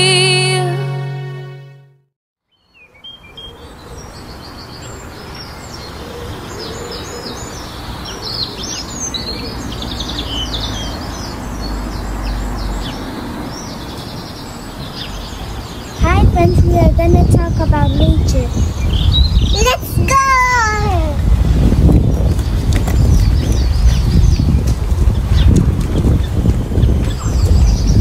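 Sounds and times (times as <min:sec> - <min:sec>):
outdoor background hiss: 0:02.5 - 0:10.5
songbirds chirping and trilling: 0:02.5 - 0:28.0.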